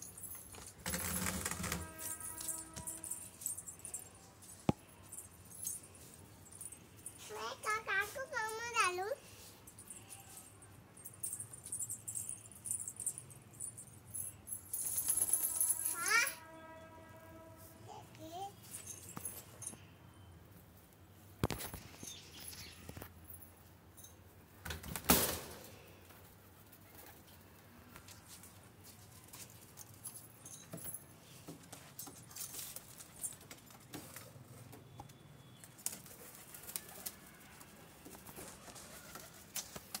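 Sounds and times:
pigeons flapping wings: 0:00.8 - 0:02.1, 0:35.8 - 0:40.0.

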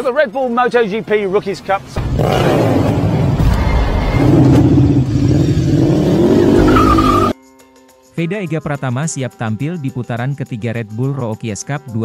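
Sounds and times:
racing motorcycle engine revving: 0:02.0 - 0:07.3.

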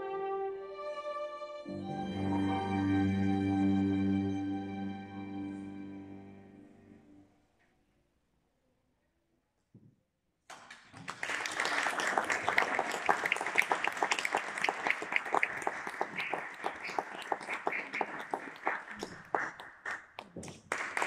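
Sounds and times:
audience applause: 0:10.5 - 0:21.0.

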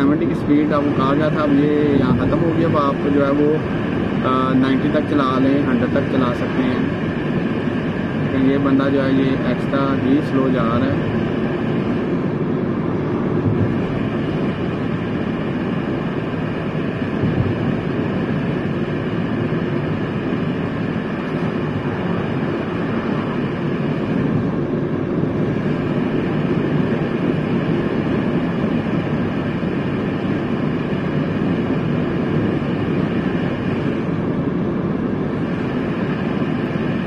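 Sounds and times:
car road and engine noise: 0:00.0 - 0:37.0.

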